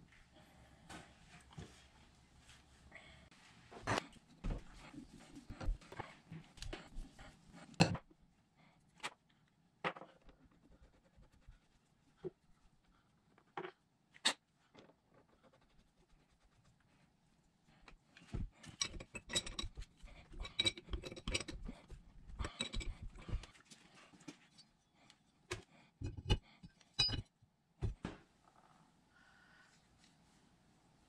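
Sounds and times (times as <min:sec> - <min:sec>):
metal tools clinking and clattering: 0:18.6 - 0:21.7, 0:22.4 - 0:23.4, 0:26.0 - 0:27.3.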